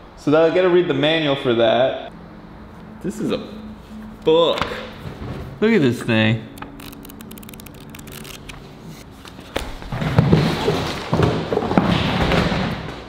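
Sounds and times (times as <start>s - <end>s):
paper pages flicking: 6.6s - 8.6s.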